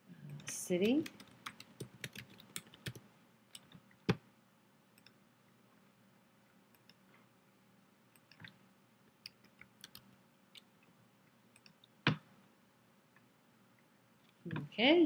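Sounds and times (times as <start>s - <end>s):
computer mouse clicks: 0.3s - 4.2s, 5.0s - 5.2s, 6.7s - 7.0s, 8.2s - 8.6s, 9.2s - 10.7s.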